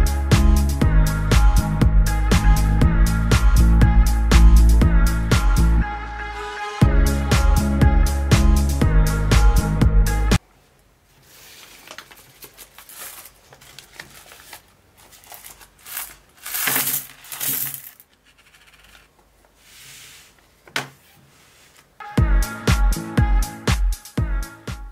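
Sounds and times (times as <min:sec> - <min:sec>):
coins clinking into a paper box: 0:15.1 - 0:19.1.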